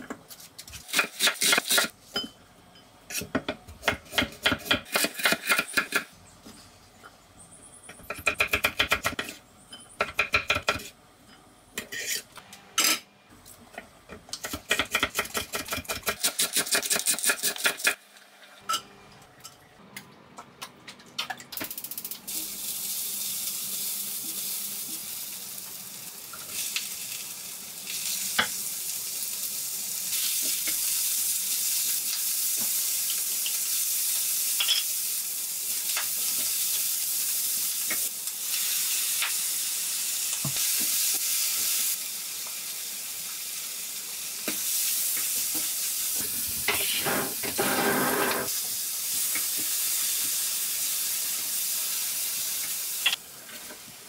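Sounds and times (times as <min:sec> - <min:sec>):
onions sizzling in hot oil: 0:22.0 - 0:54.0.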